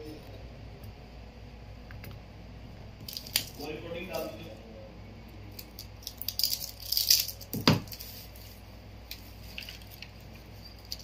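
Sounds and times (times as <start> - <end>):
small parts clicking and rattling: 5.6 - 8.2, 10.8 - 11.0.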